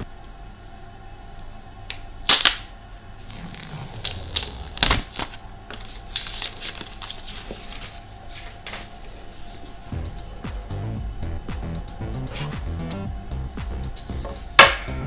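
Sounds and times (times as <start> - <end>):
plastic wrap crackling: 3.2 - 8.6
plastic film rustling: 3.2 - 9.9.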